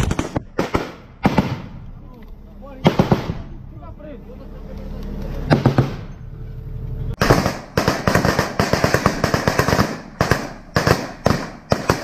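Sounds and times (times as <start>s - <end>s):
rifles and machine guns firing: 0.0s - 1.8s, 2.8s - 3.5s, 5.5s - 6.1s, 7.2s - 12.0s
armoured vehicle engine running: 0.0s - 7.8s.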